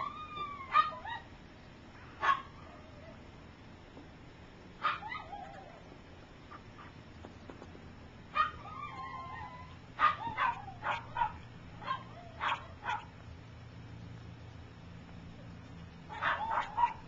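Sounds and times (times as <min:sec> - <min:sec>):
puppy whining and yelping: 0:00.0 - 0:01.4, 0:04.8 - 0:07.0, 0:08.4 - 0:13.1.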